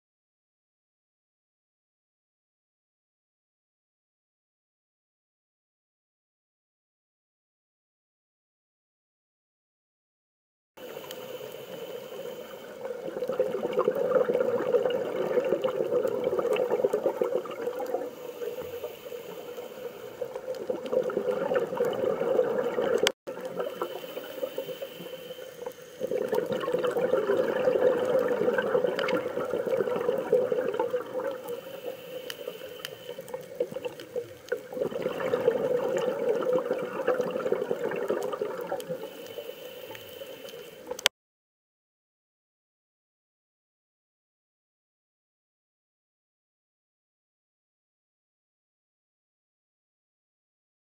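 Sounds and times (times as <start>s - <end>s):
water rushing and bubbling: 10.8s - 39.3s.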